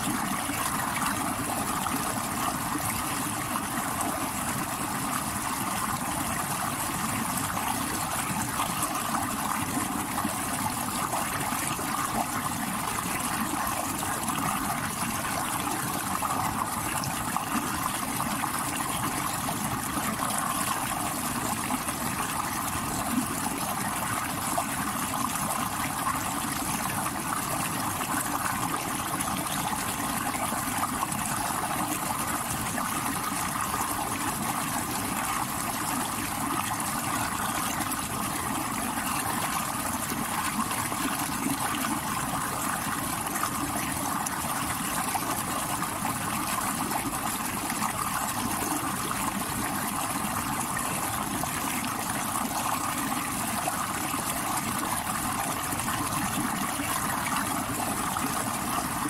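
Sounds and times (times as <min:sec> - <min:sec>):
stream water rushing over rocks: 0:00.0 - 0:59.0.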